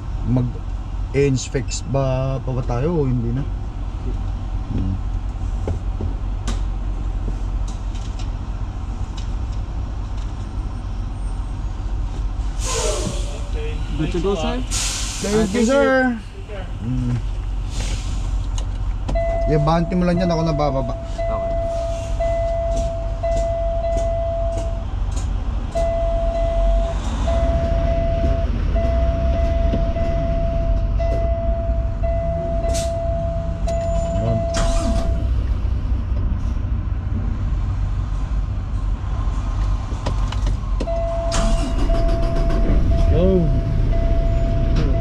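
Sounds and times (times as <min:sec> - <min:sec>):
diesel engine idling: 0:00.0 - 0:39.1, 0:40.6 - 0:45.0
steady warning tone: 0:19.1 - 0:24.9, 0:25.7 - 0:35.4, 0:40.8 - 0:45.0.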